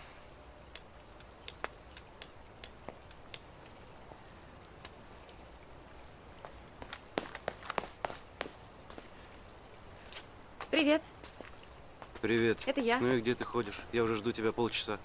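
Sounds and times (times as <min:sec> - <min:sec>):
sharp clicks and taps: 0:00.7 - 0:03.8.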